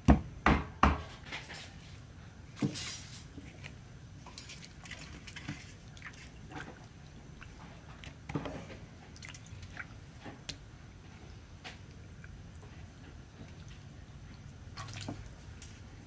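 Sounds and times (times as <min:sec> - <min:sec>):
water splashing and dripping: 0:03.4 - 0:08.2, 0:09.1 - 0:10.6, 0:13.4 - 0:15.8.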